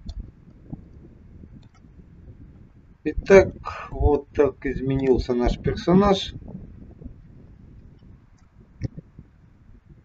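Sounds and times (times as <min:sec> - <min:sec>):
faint microphone noise: 0:00.0 - 0:10.0
soft clicks: 0:01.6 - 0:01.9.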